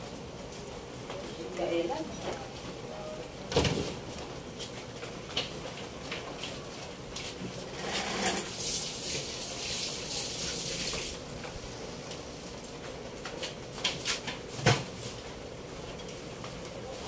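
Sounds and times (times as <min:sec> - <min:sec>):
hiss of simmering pot: 0:07.9 - 0:12.0.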